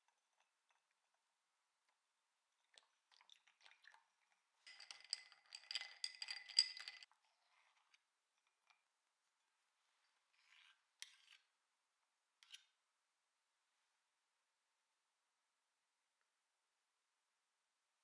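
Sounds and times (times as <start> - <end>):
ice cubes crackling in glass: 4.7 - 7.0.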